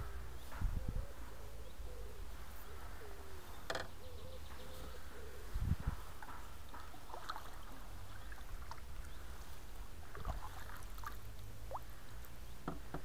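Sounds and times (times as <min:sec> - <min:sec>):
water lapping against hull: 0:06.2 - 0:12.2.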